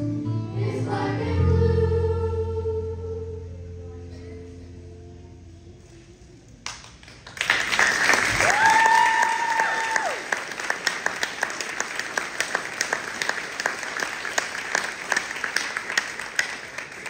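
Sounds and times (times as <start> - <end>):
audience applauding: 6.6 - 17.0.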